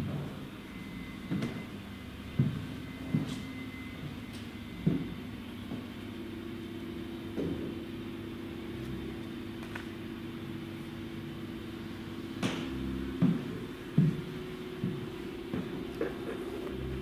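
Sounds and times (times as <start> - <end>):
low hum: 8.0 - 17.0.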